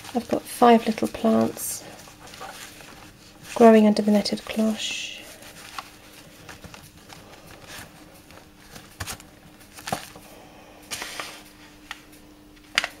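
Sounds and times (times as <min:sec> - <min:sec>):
paper packets rustling: 0:00.0 - 0:10.2.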